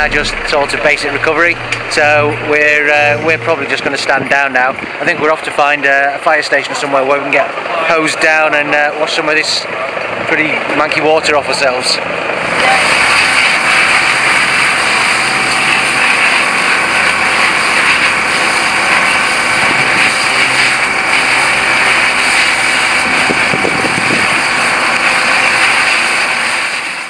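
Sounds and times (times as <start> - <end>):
pump engine running: 0.0 - 27.0
fire hose spraying water: 9.0 - 27.0.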